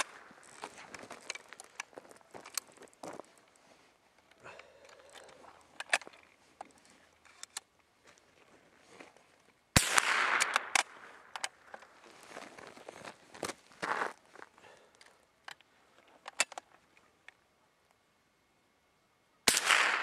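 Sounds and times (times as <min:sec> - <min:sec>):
gunshot: 0:09.8 - 0:10.7, 0:19.5 - 0:20.0.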